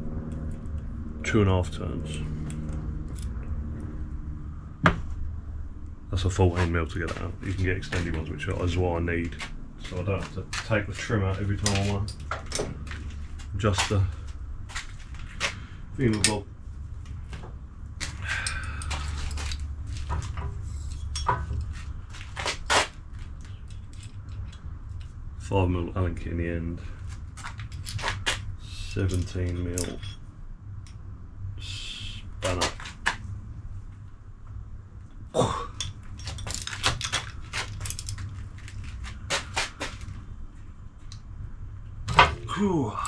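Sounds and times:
steady low hum: 0.0 - 43.0
hand tools clinking on metal: 18.0 - 19.6, 29.0 - 30.2.

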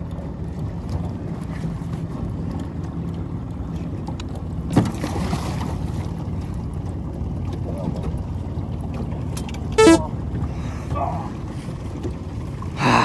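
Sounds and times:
wind: 0.0 - 13.0
water noise: 2.0 - 10.6
boat motor humming: 5.8 - 12.8.

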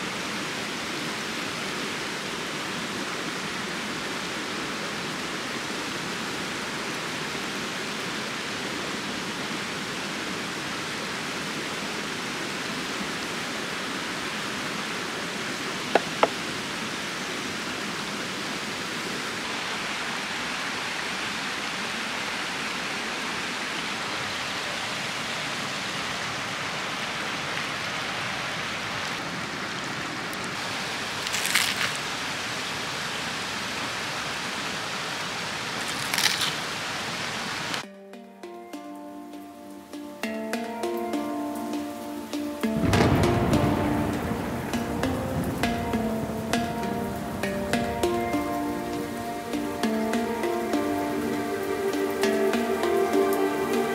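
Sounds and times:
stream flowing over rocks: 0.0 - 53.9
short crackle: 31.2 - 32.0, 35.8 - 36.7.

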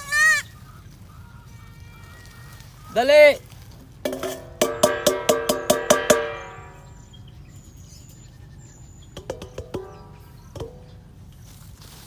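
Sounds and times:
ringing metallic strikes: 4.1 - 7.3, 9.2 - 11.0.

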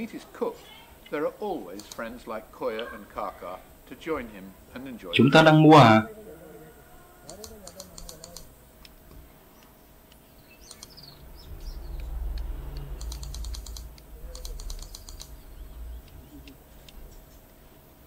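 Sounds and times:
rapid high-pitched clicking: 1.7 - 2.2, 7.3 - 8.5, 12.8 - 15.4
faint bird chirps: 9.5 - 17.8
low rumble: 11.2 - 17.4.

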